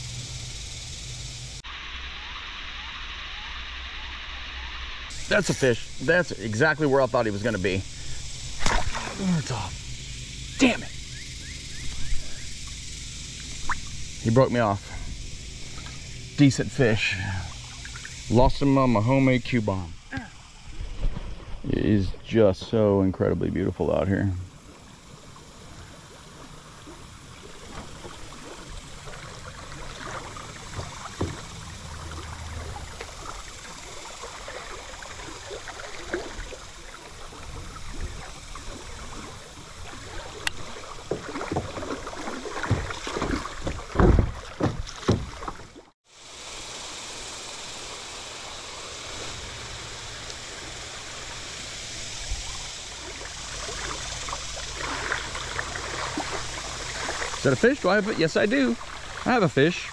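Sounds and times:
river current rushing: 5.1 - 11.1, 23.8 - 59.9
kayak splashes and thumps: 8.5 - 9.7, 26.2 - 46.0, 53.0 - 59.9
water flowing over gravel: 52.4 - 59.9.

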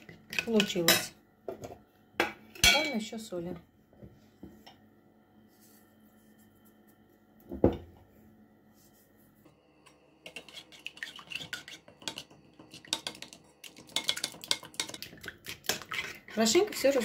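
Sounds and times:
spoon stirring batter in bowl: 9.9 - 17.0.

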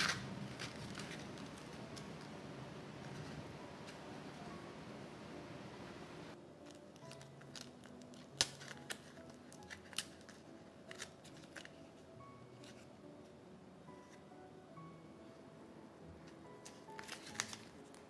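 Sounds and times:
quiet background music: 0.0 - 18.0.

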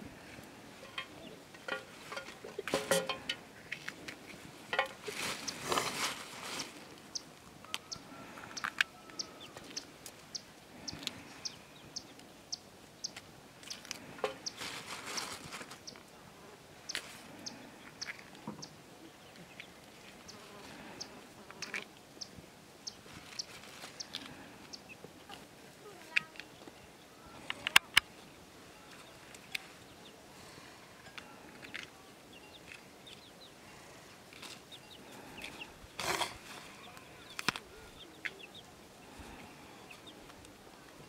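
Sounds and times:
plastic bag rustling: 4.7 - 7.0, 14.2 - 15.9, 23.1 - 24.2.

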